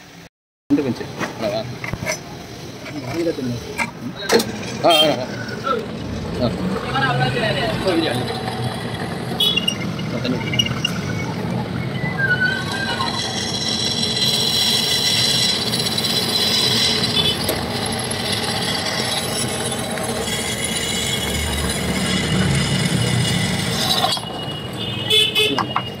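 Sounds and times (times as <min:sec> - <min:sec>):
drill press boring metal: 0:12.8 - 0:24.3.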